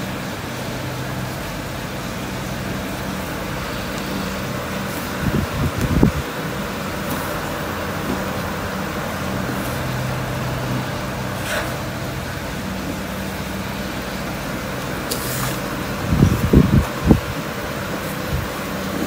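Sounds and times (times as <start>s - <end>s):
mechanical hum: 0.0s - 19.0s
hiss: 2.4s - 8.3s, 15.0s - 19.0s.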